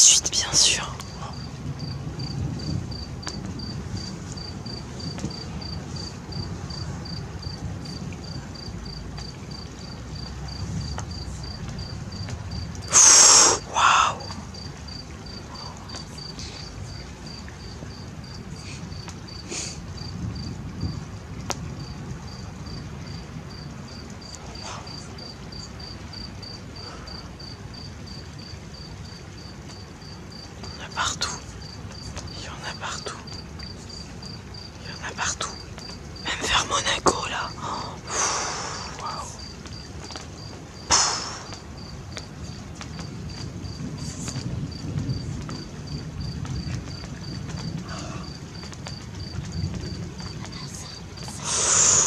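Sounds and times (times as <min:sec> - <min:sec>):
loud hissing noise: 0:00.0 - 0:01.3, 0:12.9 - 0:14.2, 0:38.0 - 0:39.4, 0:40.8 - 0:41.7, 0:51.4 - 0:52.0
cricket chirping: 0:00.0 - 0:52.0.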